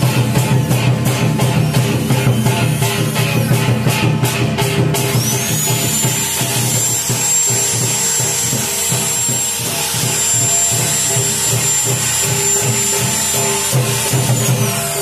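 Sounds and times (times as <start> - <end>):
electric drill whine: 0.1 - 4.0, 4.6 - 15.0.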